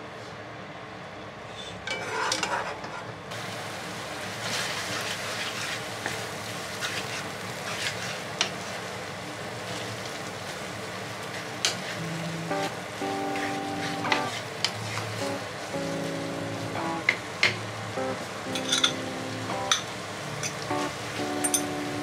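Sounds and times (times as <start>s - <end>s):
pasta sizzling in frying pan: 3.3s - 22.0s
spatula scraping pan: 6.8s - 8.3s.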